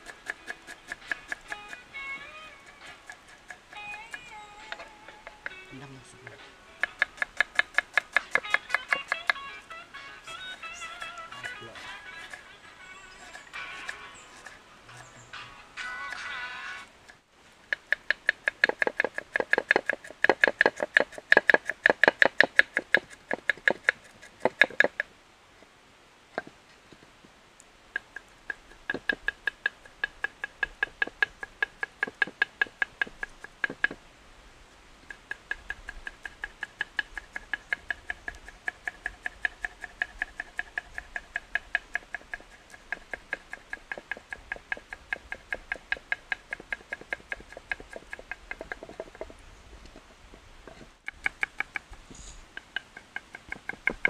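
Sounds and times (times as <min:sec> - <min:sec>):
knife chopping on wooden board: 0:00.0 - 0:01.8, 0:06.4 - 0:09.4.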